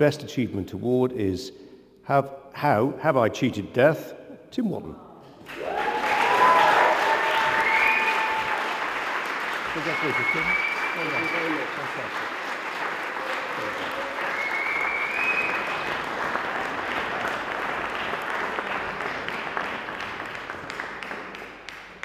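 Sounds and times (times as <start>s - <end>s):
audience applauding: 5.4s - 22.0s
high whistle-like tone: 9.8s - 11.7s, 14.3s - 15.8s.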